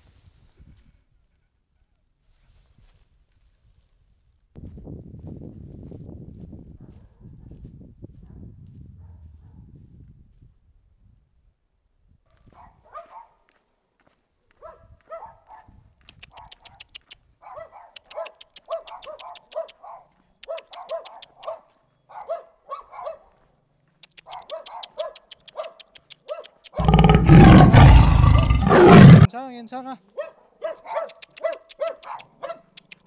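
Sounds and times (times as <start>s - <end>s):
dogs barking: 12.6s - 13.4s, 14.6s - 15.7s, 17.4s - 23.4s, 24.3s - 29.2s, 30.2s - 32.7s.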